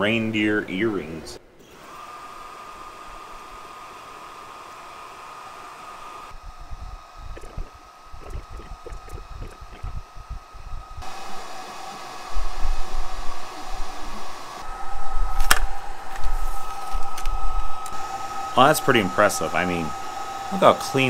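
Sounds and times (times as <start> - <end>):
laser engraver fan blowing: 1.7 - 21.0
motors moving laser head: 11.0 - 21.0.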